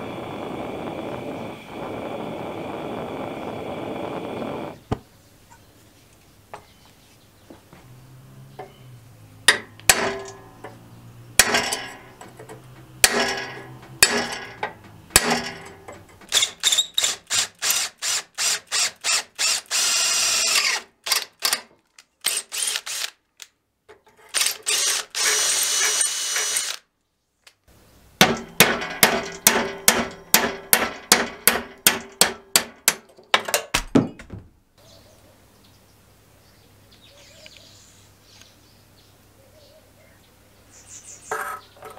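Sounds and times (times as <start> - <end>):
hammer striking steel punch: 9.5 - 10.8, 11.4 - 16.3, 28.2 - 33.1
electric drill boring: 13.0 - 21.6, 22.2 - 23.2, 24.3 - 26.8.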